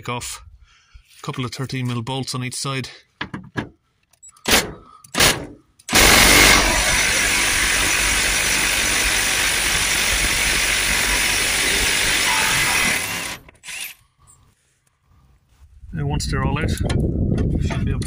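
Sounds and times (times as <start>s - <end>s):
cordless impact wrench running: 5.9s - 14.0s.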